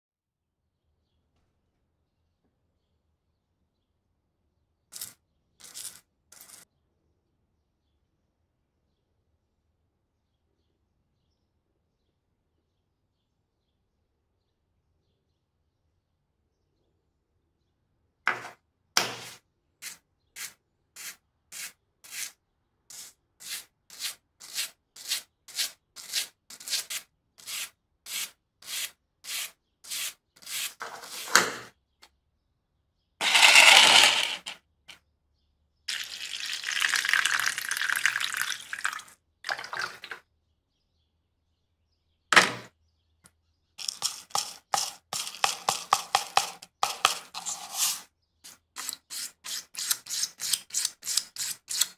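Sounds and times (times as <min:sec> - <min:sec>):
powder pattering in plastic tub: 0:43.8 - 0:47.5
stiff brush scrubbing metal: 0:43.8 - 0:51.9.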